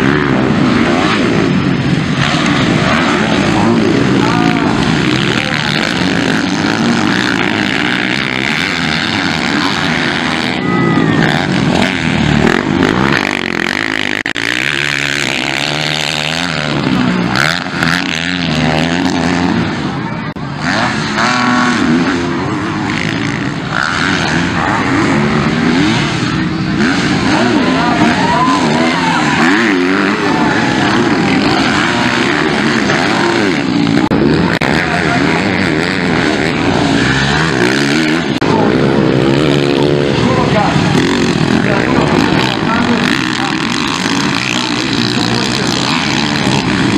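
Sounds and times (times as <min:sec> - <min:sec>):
motocross bike engines revving: 0:00.0 - 0:46.9.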